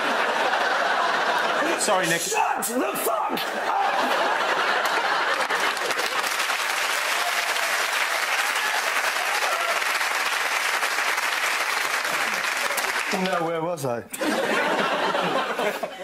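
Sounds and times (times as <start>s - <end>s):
audience applauding: 3.7s - 13.6s.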